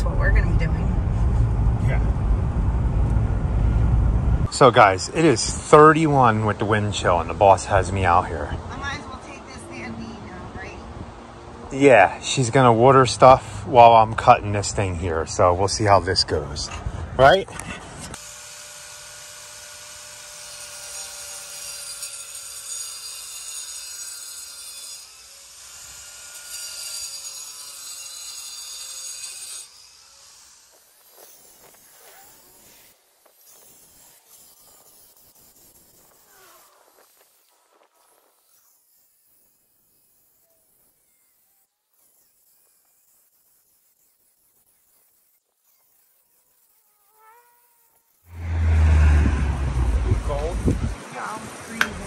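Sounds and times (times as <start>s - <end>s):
wind buffeting microphone: 0.0s - 5.9s, 48.6s - 52.0s
angle grinder cutting concrete: 4.5s - 10.4s, 11.7s - 52.0s.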